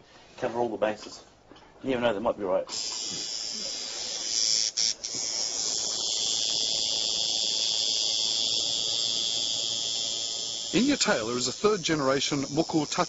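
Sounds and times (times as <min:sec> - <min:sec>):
tattoo machine buzzing: 0:02.7 - 0:13.0.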